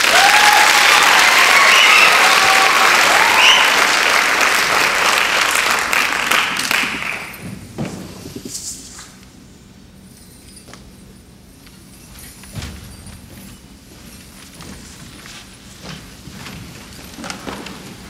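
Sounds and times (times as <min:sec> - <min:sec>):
voices whooping: 0:00.0 - 0:04.1
audience applauding: 0:00.0 - 0:07.4.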